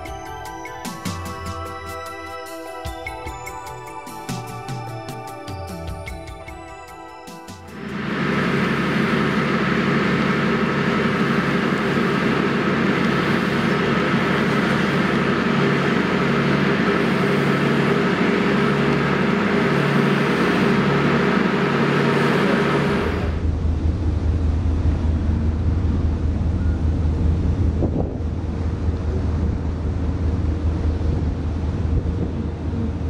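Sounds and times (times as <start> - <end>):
ship engine drone: 0.0 - 33.0
water rushing in wake: 7.7 - 33.0.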